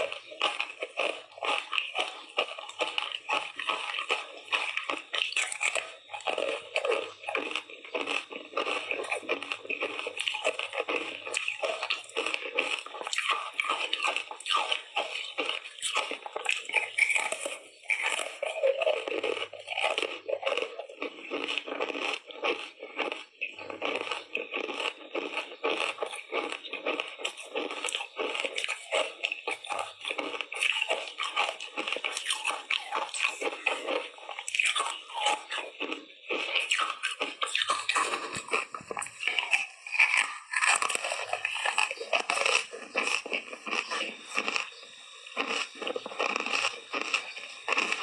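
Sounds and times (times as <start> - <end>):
ice crunching while chewed: 0.0 - 48.0.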